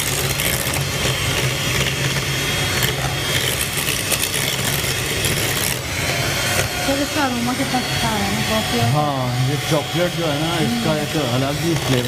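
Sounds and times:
electric hand mixer whisking: 0.0s - 12.0s.

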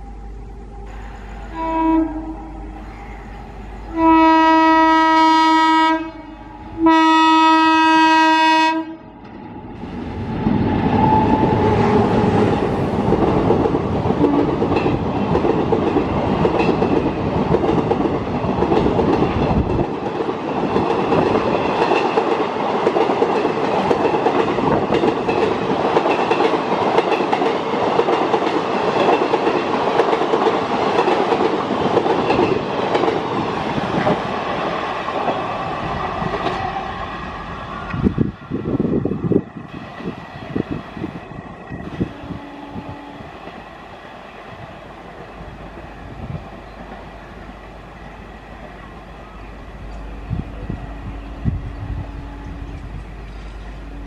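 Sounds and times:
train coaches rushing past: 0.0s - 54.0s
train horn blasts: 0.8s - 2.8s, 3.8s - 9.2s, 41.9s - 43.4s, 49.9s - 54.0s.

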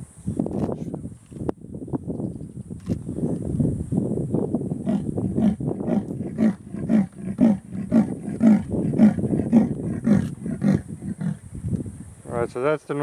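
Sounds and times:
leopard rasping sawing call: 4.9s - 11.4s.

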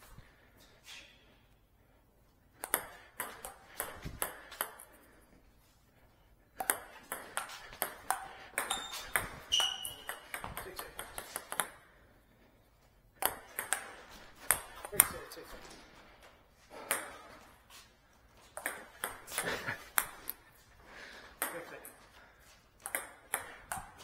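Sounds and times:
table tennis ball clicks: 2.6s - 4.9s, 13.2s - 15.2s, 22.8s - 24.0s.

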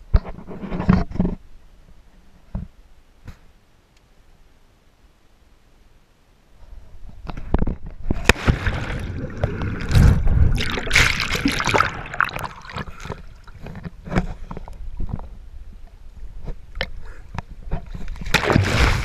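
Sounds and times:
water splashing: 8.1s - 14.0s, 18.1s - 19.0s
underwater bubbling: 8.1s - 16.1s
water dripping: 10.6s - 13.8s.

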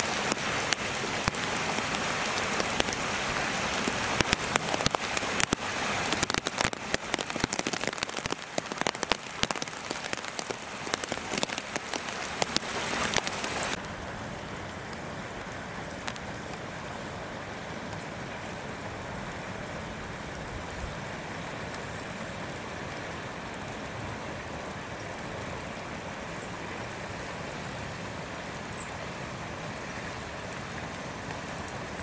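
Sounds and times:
wet snow hissing and ticking: 0.0s - 16.4s.

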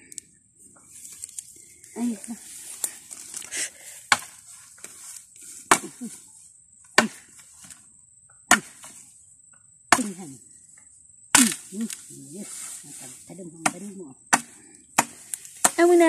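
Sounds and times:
high insect buzz: 0.8s - 16.0s
machete chopping wood: 4.1s - 4.4s, 5.7s - 6.0s, 7.0s - 7.3s, 8.5s - 9.0s, 9.9s - 10.2s, 11.3s - 11.7s, 13.6s - 16.0s.

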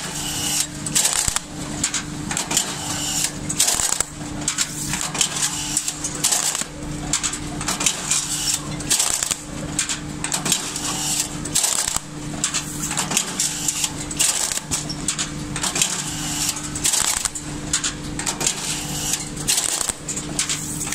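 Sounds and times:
strapping machine motor hum: 0.0s - 20.9s
harsh bursts of strap feeding: 0.2s - 1.6s, 2.6s - 6.8s, 8.1s - 9.5s, 10.5s - 14.8s, 15.8s - 17.4s, 18.5s - 20.9s.

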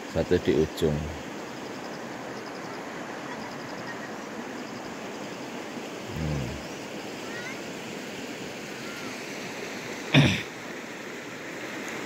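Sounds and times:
person humming: 6.1s - 6.6s.

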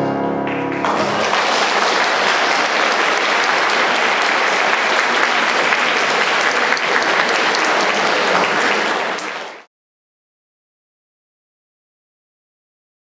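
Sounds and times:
audience applauding: 0.5s - 9.7s.

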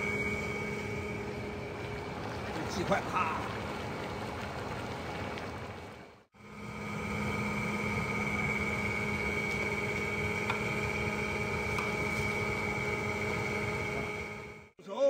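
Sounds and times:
high whine: 0.0s - 4.2s, 6.4s - 14.8s
low hum: 0.0s - 14.8s
woks boiling hard: 0.0s - 14.8s.

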